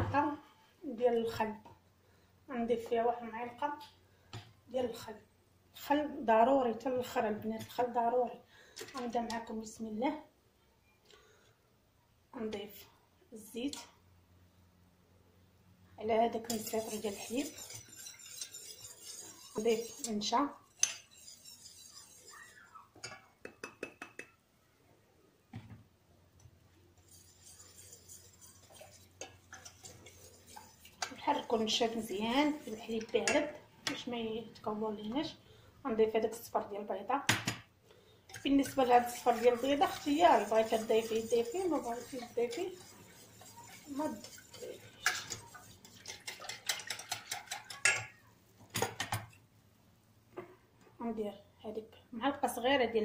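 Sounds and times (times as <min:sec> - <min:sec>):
whisking in a saucepan: 0:16.3 - 0:24.3, 0:27.0 - 0:33.6, 0:38.3 - 0:48.2.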